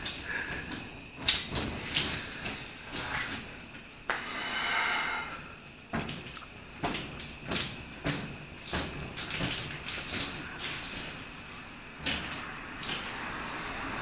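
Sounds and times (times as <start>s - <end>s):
air blown through a tube: 4.1s - 5.6s.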